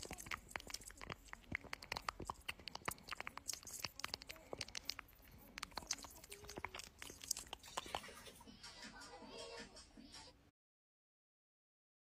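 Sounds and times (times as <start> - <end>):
insect crunching clicks: 0.0 - 7.9.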